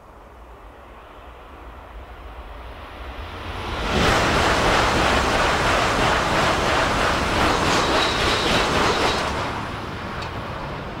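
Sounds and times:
high-speed train passing: 0:00.0 - 0:11.0.

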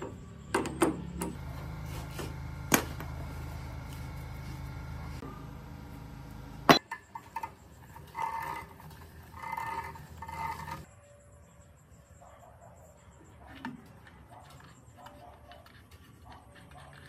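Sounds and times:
low hum: 0:01.0 - 0:06.9
ringing metal scrapes: 0:06.7 - 0:11.2.

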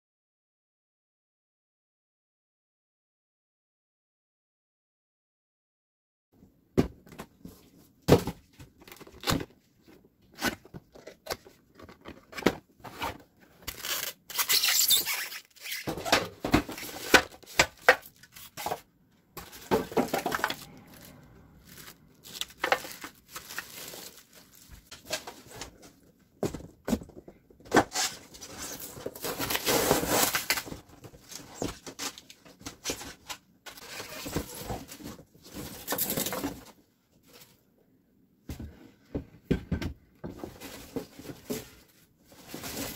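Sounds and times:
plastic wrap crinkling: 0:13.6 - 0:15.9, 0:19.4 - 0:25.4.

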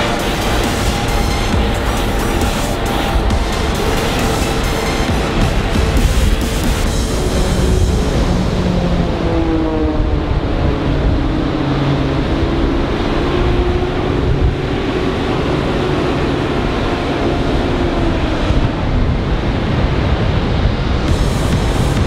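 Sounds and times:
propeller plane engine droning: 0:00.0 - 0:22.0
wind noise on microphone: 0:00.0 - 0:22.0.

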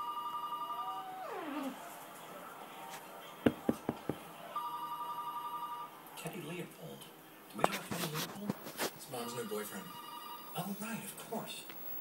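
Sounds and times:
dog whimpering: 0:01.3 - 0:01.8
telephone two-tone trill ringing: 0:04.6 - 0:05.9, 0:09.3 - 0:10.6.

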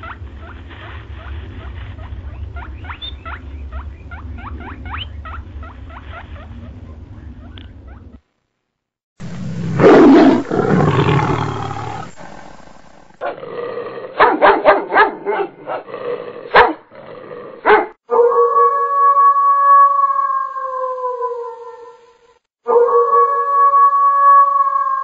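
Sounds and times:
dog yelps and squeals: 0:01.2 - 0:08.2
big cat growling roar: 0:09.2 - 0:14.2, 0:15.8 - 0:17.7
long wailing cry: 0:18.1 - 0:22.1, 0:22.7 - 0:25.0.

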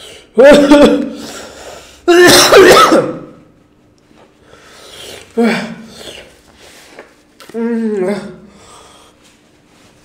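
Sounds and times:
man coughing loudly: 0:00.4 - 0:01.4, 0:02.1 - 0:03.5.

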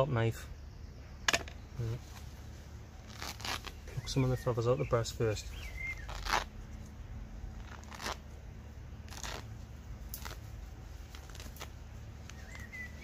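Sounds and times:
feathers tearing rasps: 0:03.0 - 0:04.1, 0:05.5 - 0:13.0.

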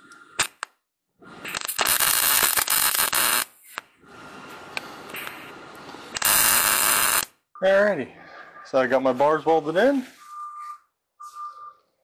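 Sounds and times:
arc welding crackling hiss: 0:01.4 - 0:03.5, 0:06.2 - 0:07.3.

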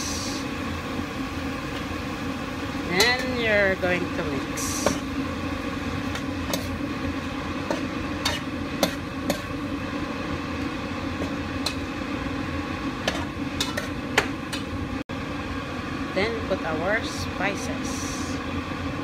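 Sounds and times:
spoon scraping a pan: 0:07.6 - 0:09.6.

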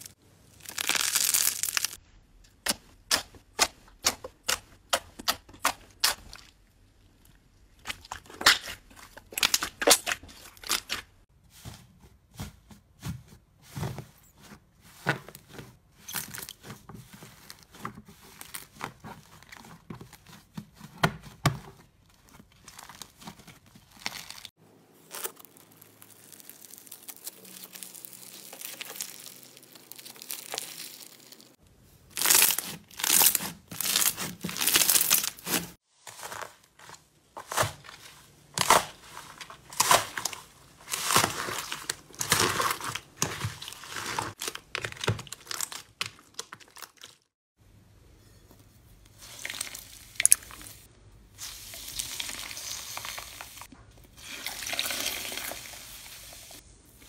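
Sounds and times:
slime crackling and tearing: 0:00.0 - 0:02.0, 0:22.6 - 0:36.5, 0:38.5 - 0:47.3.

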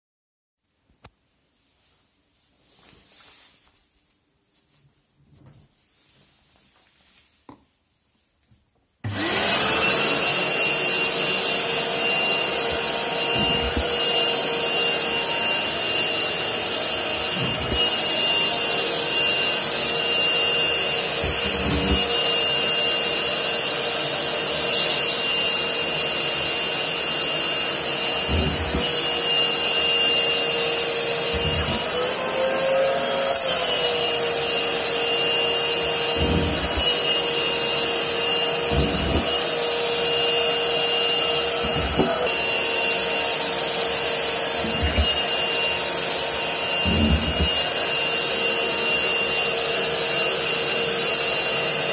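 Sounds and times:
shop vac running: 0:09.0 - 0:51.9
hose sucking at fabric: 0:09.3 - 0:23.8, 0:24.5 - 0:43.2, 0:44.0 - 0:48.0.

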